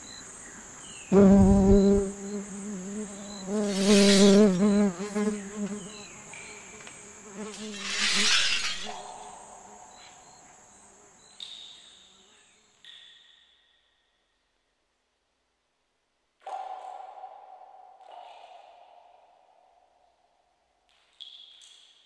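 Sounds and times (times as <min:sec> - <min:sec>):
high cricket-like trill: 0:01.1 - 0:06.0, 0:07.3 - 0:12.0
loud wavering insect buzz: 0:01.1 - 0:06.3, 0:07.0 - 0:11.0
hissy rushes: 0:03.6 - 0:04.6, 0:07.5 - 0:09.6.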